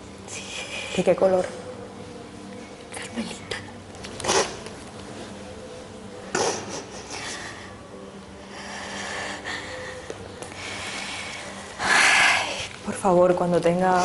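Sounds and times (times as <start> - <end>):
woman sniffling: 6.3 - 7.8.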